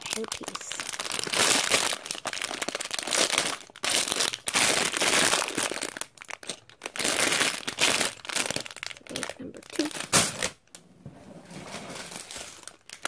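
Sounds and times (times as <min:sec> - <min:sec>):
plastic bags crinkling: 0:00.0 - 0:10.7, 0:11.5 - 0:13.0.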